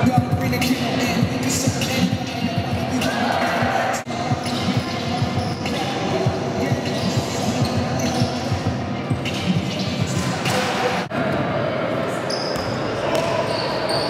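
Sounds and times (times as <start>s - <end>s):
music playing: 0.0s - 11.1s.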